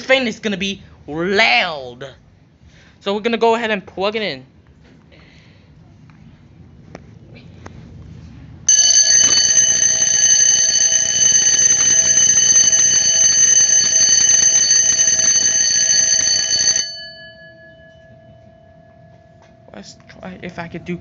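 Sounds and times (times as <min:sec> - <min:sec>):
electric fire alarm bell ringing: 0:08.7 - 0:21.0.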